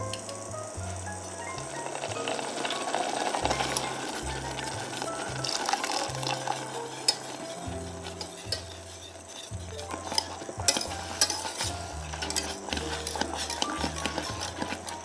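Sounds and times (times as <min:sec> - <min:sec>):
soft background music: 0:00.0 - 0:15.0
whisk scraping metal pot: 0:00.0 - 0:15.0.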